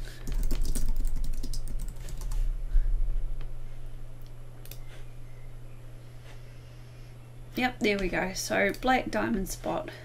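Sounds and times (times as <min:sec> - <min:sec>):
steady low hum: 0:00.0 - 0:10.0
keyboard typing: 0:00.2 - 0:02.4.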